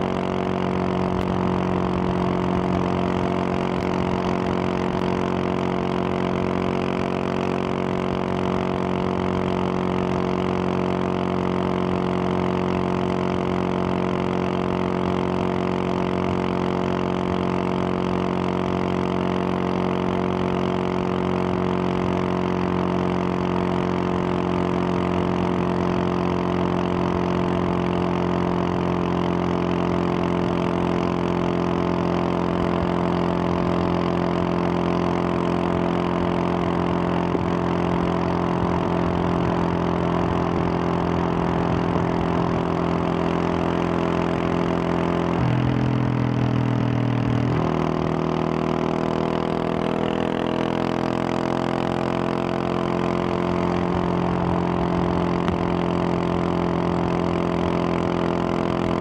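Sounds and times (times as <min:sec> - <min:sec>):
motorcycle engine cruising: 0:00.0 - 0:59.0.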